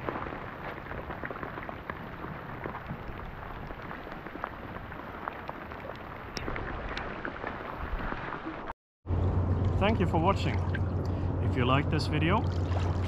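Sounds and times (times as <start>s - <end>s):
rain drops ticking: 0.0s - 8.4s.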